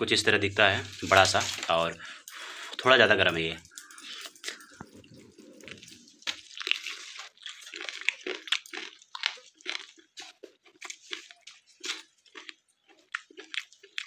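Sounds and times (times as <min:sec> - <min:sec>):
person biting and chewing chicken: 0:04.0 - 0:14.0.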